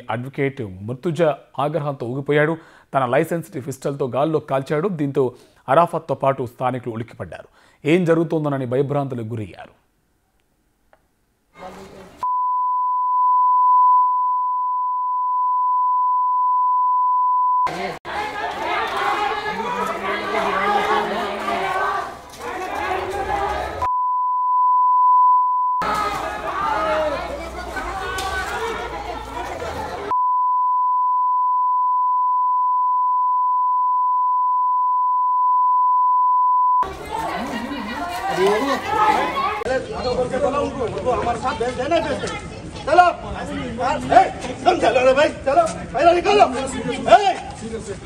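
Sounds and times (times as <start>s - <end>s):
long censor beep: 12.2s - 17.7s, 23.9s - 25.8s, 30.1s - 36.8s
voices: 17.7s - 23.9s, 25.8s - 30.1s, 36.8s - 47.9s.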